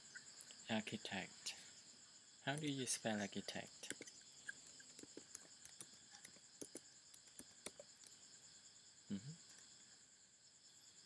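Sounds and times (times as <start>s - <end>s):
crickets chirring: 0.0s - 11.0s
keyboard typing clicks: 4.8s - 8.1s.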